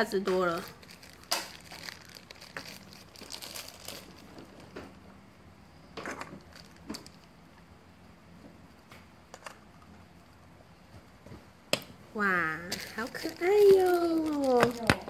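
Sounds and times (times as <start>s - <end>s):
plastic bag crinkling: 0.4s - 4.8s, 6.1s - 7.3s, 12.6s - 15.0s.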